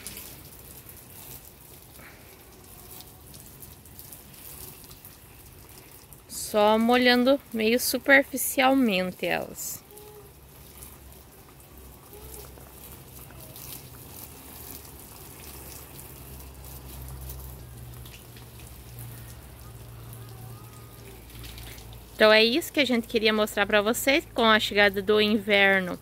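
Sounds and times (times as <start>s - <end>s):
water spraying from hose: 0.0s - 26.0s.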